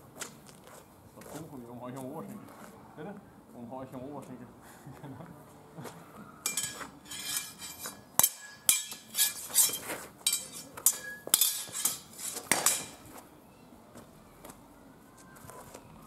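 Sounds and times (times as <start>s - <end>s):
steel swords clashing: 6.4s - 13.1s.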